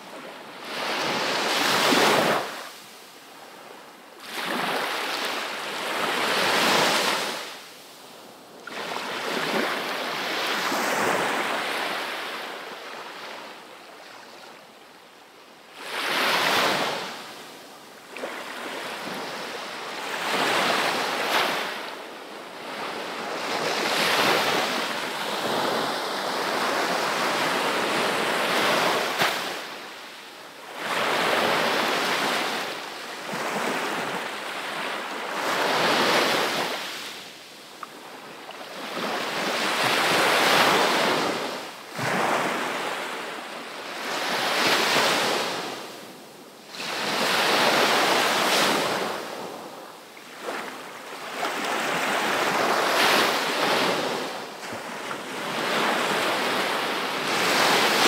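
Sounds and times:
sea waves breaking on beach: 4.2s - 7.6s, 38.2s - 45.9s, 46.7s - 58.0s.

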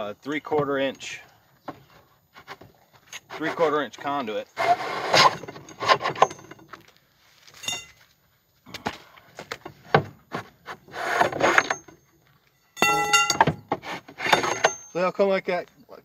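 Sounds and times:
metal pipes scraping on wood: 0.0s - 6.8s, 9.7s - 15.2s
metal pipes clanging: 5.2s - 6.8s, 7.6s - 8.0s, 11.5s - 15.2s
pipes knocking down: 12.8s - 14.9s.

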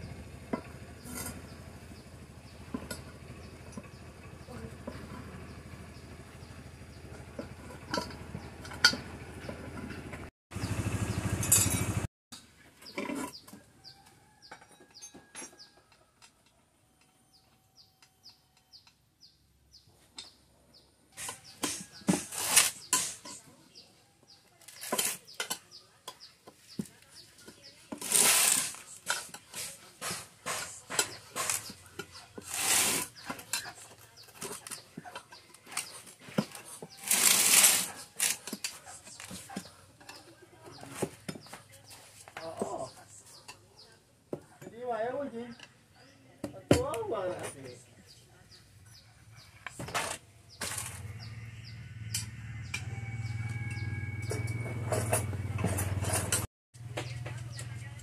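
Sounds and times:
tyre lever scraping rubber and metal: 21.2s - 23.2s, 27.9s - 33.8s.

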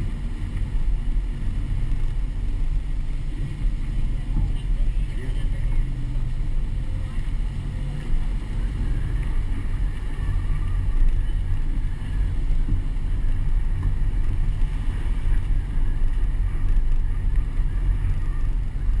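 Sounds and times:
road noise: 0.0s - 19.0s
vehicle engine: 0.0s - 19.0s.

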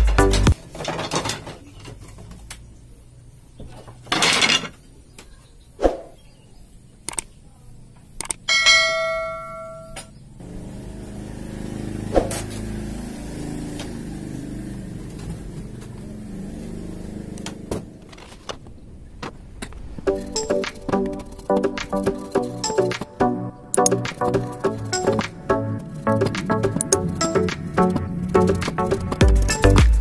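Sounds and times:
bell chime sound effect: 8.5s - 10.0s.

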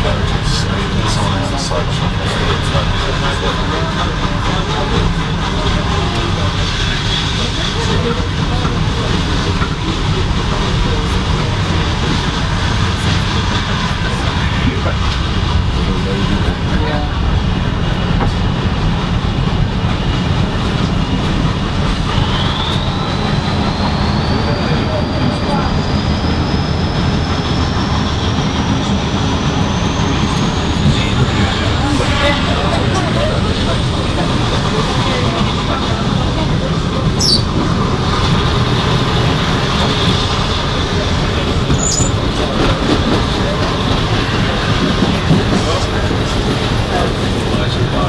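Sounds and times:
train wheels rumbling on rails: 0.0s - 48.0s
high squeak: 37.2s - 37.5s.

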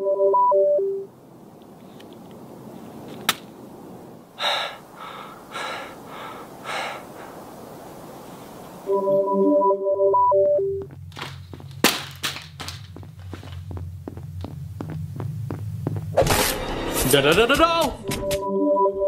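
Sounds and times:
steady low hiss: 0.1s - 18.1s
person gasping for breath: 4.4s - 7.4s.

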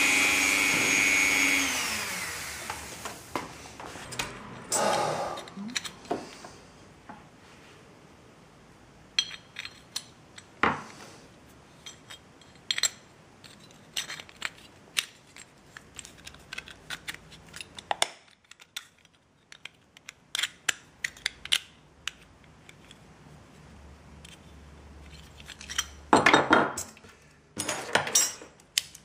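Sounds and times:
metal parts clicking and clinking: 5.4s - 6.0s, 9.2s - 10.6s, 11.8s - 23.0s, 24.2s - 29.0s.

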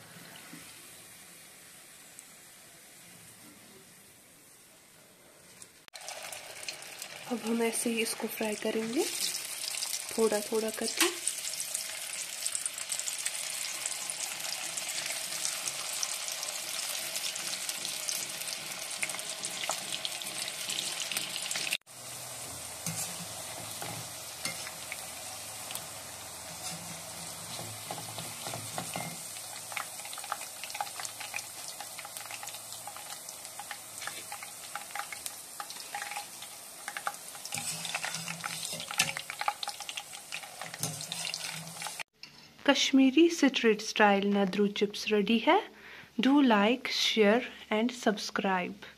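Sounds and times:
crackling sizzle of deep-frying: 0.0s - 42.2s
strainer scraping a pan: 22.8s - 24.8s, 26.5s - 29.2s, 36.9s - 42.5s.

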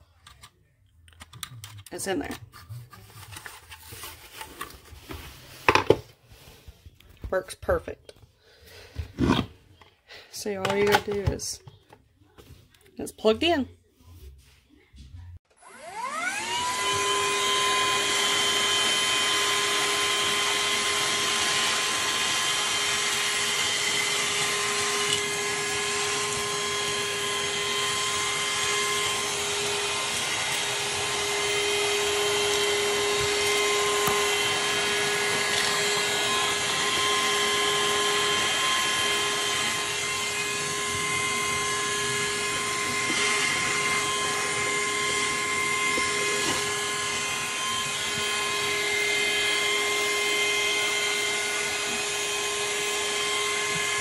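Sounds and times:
handheld vacuum whining: 15.5s - 54.0s.

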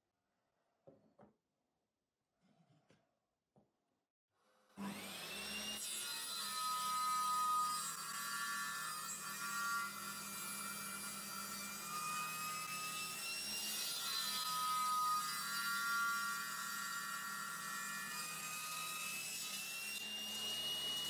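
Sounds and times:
table saw cutting wood: 4.7s - 21.0s.

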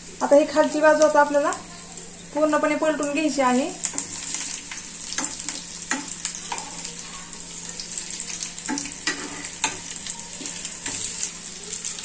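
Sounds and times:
fish sizzling in oil: 0.0s - 12.0s
metal spatula scraping pan: 8.7s - 9.8s.

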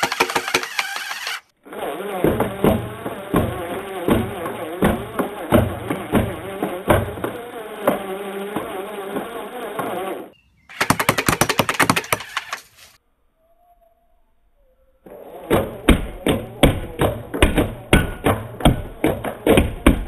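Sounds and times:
rapid clicking clatter: 0.0s - 1.5s
drill motor whirring: 0.0s - 10.8s.

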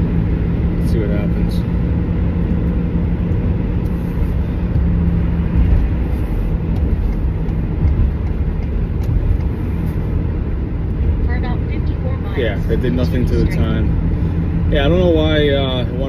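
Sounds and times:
van engine and tyre rumble: 0.0s - 16.0s.

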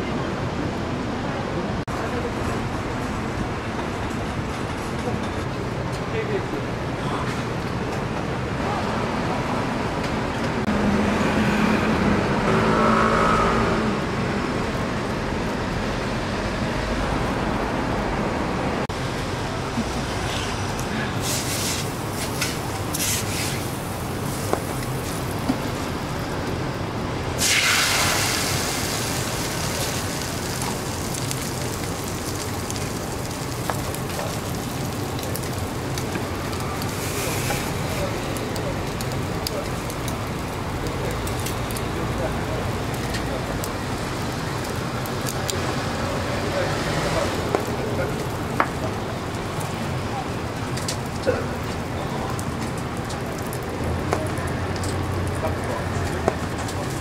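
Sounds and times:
traffic-like background noise: 0.0s - 57.0s
oil sizzling on griddle: 21.2s - 26.5s, 27.3s - 51.2s
egg sizzling on hot plate: 27.4s - 34.7s.

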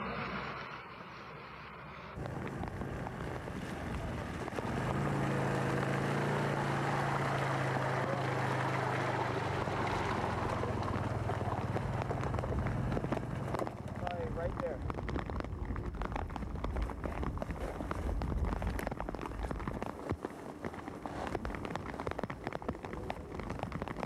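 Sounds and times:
engine running steadily: 1.9s - 15.4s
wind noise: 9.3s - 24.0s.

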